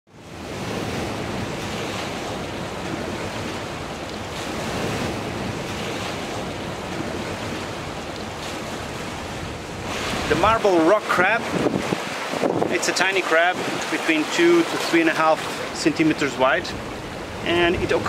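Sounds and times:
sea surf washing on shore: 0:00.1 - 0:18.0
wind buffeting microphone: 0:00.2 - 0:14.8.

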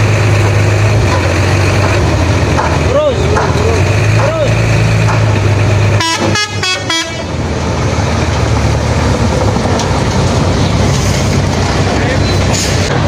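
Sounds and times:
truck engine passing by: 0:00.0 - 0:13.0
truck horn toots: 0:05.9 - 0:07.4.

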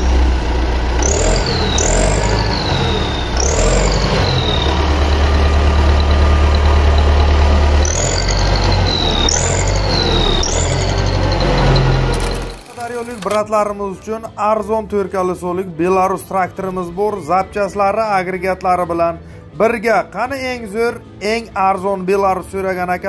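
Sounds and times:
tractor diesel engine idling: 0:00.0 - 0:13.7
high sliding chirp: 0:01.0 - 0:13.2.

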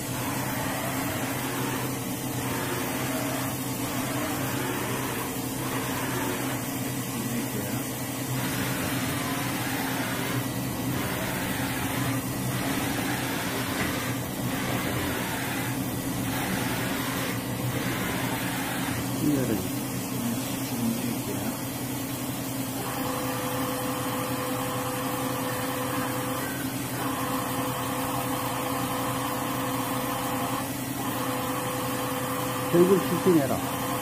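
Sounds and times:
faint rising and falling whines: 0:00.0 - 0:19.8
machine humming: 0:00.0 - 0:34.0.

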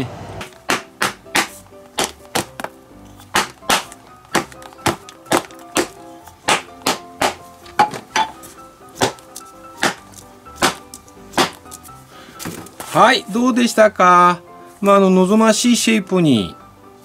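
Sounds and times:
soft background music: 0:00.0 - 0:17.0
bat striking baseball glove: 0:00.4 - 0:08.4, 0:09.0 - 0:11.7.

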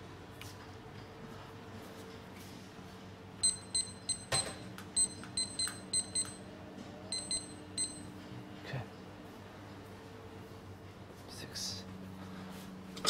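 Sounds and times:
steady low hum: 0:00.0 - 0:13.0
short high keypad beeps: 0:03.4 - 0:06.4, 0:07.1 - 0:08.1.

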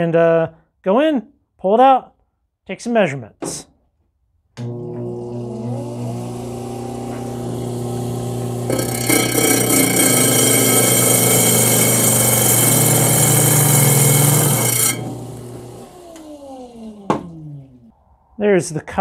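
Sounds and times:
saw motor hum: 0:04.6 - 0:17.9
loud hissing grind: 0:06.1 - 0:17.0.

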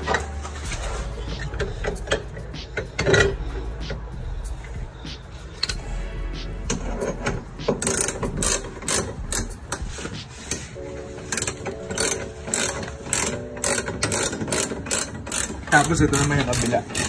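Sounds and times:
ratchet wrench clicking: 0:07.7 - 0:10.6, 0:11.4 - 0:17.0.

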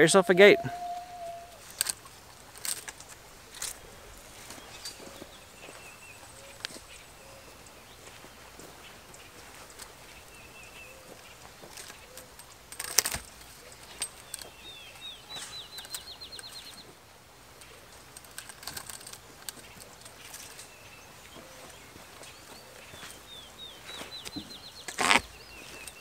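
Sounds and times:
songbird singing high notes: 0:00.0 - 0:01.6
birds chirping faintly: 0:00.0 - 0:26.0
plastic netting rustles and clicks: 0:01.4 - 0:26.0.

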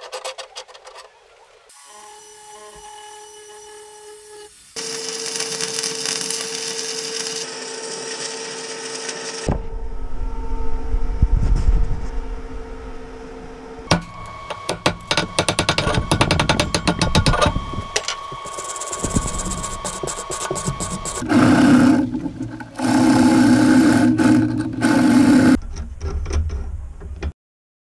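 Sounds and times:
arc welding crackle: 0:04.2 - 0:09.5, 0:14.0 - 0:21.7
low rumbling: 0:09.5 - 0:13.9.

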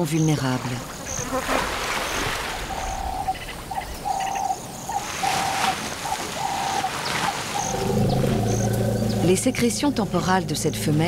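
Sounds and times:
birds chirping: 0:00.0 - 0:11.0
dove cooing: 0:02.6 - 0:09.4.

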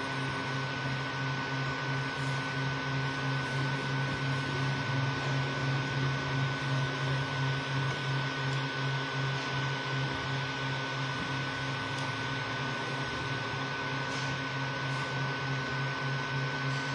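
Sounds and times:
pulsing motor hum: 0:00.0 - 0:16.9.

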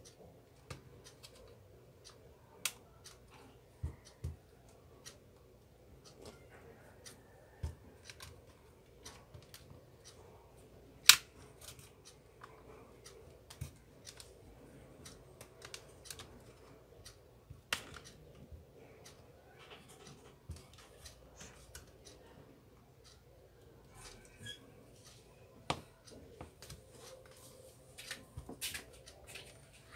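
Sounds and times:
plastic clips snapping: 0:11.0 - 0:11.8.

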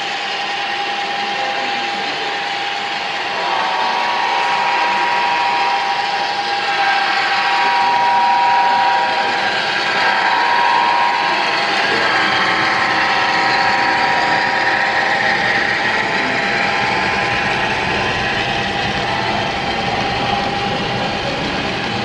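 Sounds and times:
high-pitched whine: 0:00.0 - 0:22.0
model locomotive motor whir: 0:00.0 - 0:22.0.

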